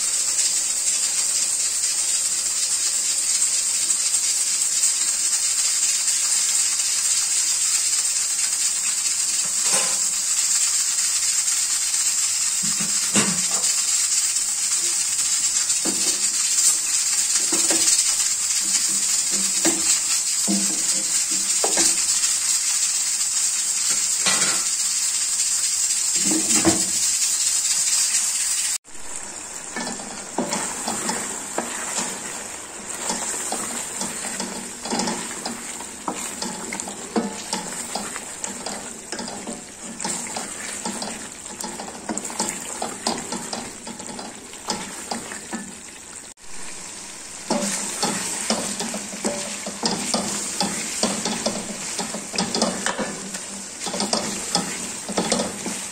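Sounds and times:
curry sizzling in a pot: 0:00.0 - 0:55.9
spatula scraping a pot: 0:29.8 - 0:45.7, 0:47.5 - 0:55.9.

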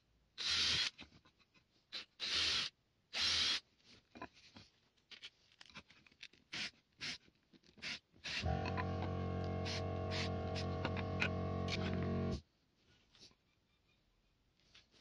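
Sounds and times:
cordless drill boring into wood: 0:08.2 - 0:12.4.

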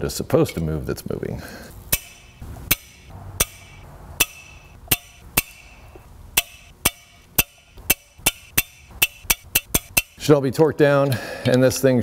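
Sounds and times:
torque wrench clicking: 0:06.4 - 0:10.2.

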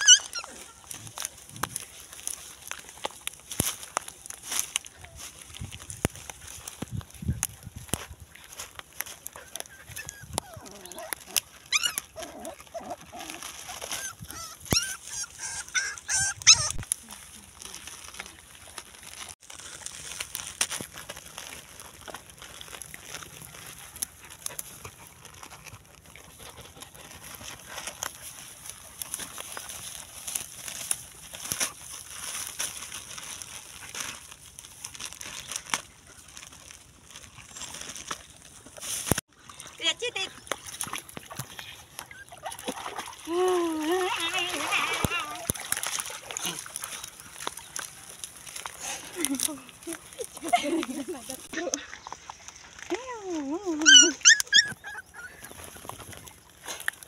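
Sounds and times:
crinkling and clicking: 0:00.1 - 0:39.2, 0:43.4 - 0:57.0
dog chewing a container: 0:18.7 - 0:38.7.

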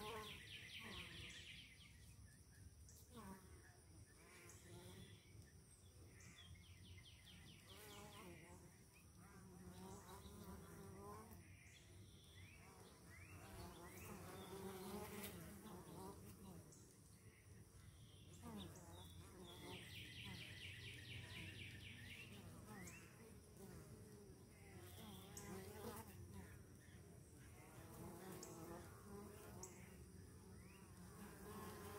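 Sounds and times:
bees buzzing: 0:27.6 - 0:31.9.

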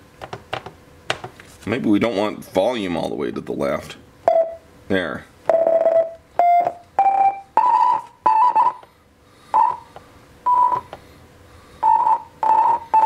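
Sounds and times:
short synth beep notes: 0:05.5 - 0:08.8, 0:10.5 - 0:10.8.

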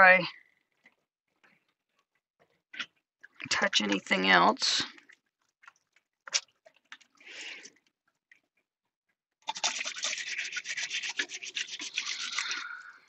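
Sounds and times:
faucet water running and splashing: 0:09.4 - 0:13.0.

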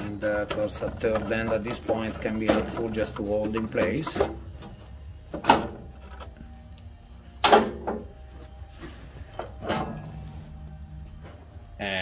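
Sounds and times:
metal casing clunks: 0:00.0 - 0:06.6, 0:07.3 - 0:08.2.

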